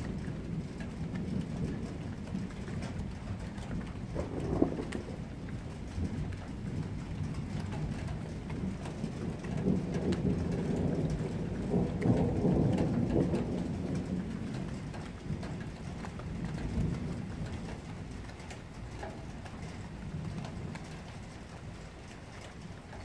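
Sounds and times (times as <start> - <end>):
raindrops ticking: 0.0 - 23.0
thunder rumbling: 0.0 - 23.0.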